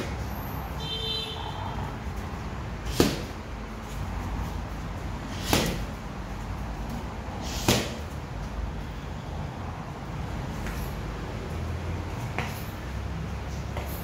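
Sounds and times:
boxing glove punches on pads: 2.9s - 3.4s, 5.4s - 6.0s, 7.5s - 8.1s.

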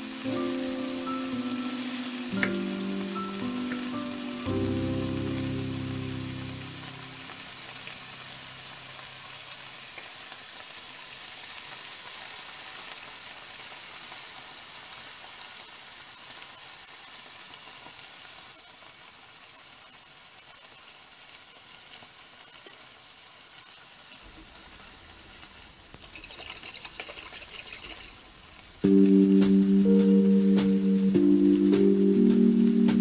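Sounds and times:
food sizzling in a frying pan: 0.0s - 33.0s.

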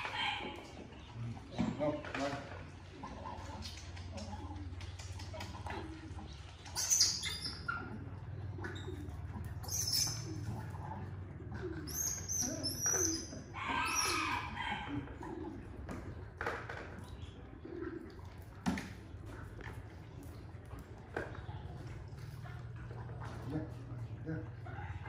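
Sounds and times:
high-pitched chirps and squeaks: 6.7s - 7.7s, 9.6s - 10.3s.

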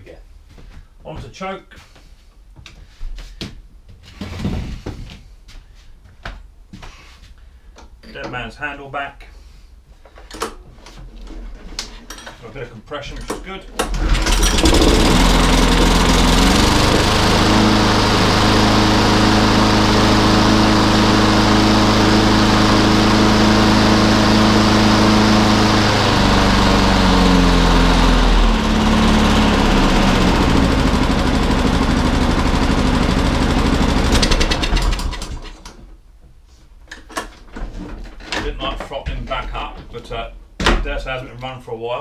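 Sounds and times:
lawnmower engine running: 13.8s - 35.7s.

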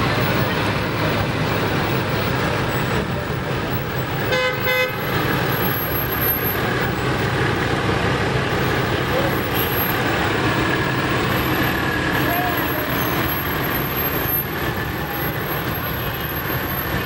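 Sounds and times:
slow trucks rumbling: 0.0s - 17.0s
vehicle horn toot: 4.3s - 5.1s.

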